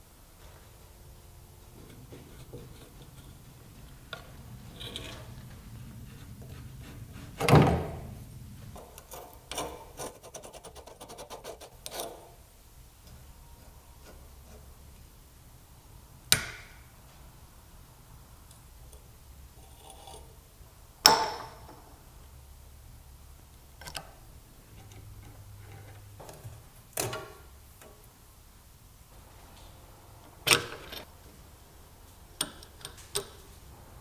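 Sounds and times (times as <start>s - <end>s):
metal tools scraping: 4.6s - 7.0s.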